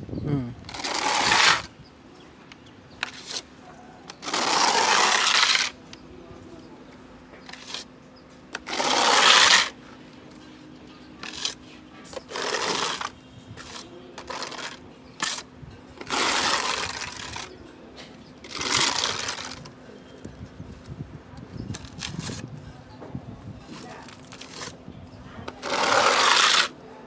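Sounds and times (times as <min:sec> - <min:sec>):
metal blade scraping wet plaster: 0:00.7 - 0:01.7, 0:04.1 - 0:05.8, 0:08.6 - 0:09.8, 0:11.2 - 0:15.4, 0:16.0 - 0:17.5, 0:18.4 - 0:19.7, 0:25.5 - 0:26.8.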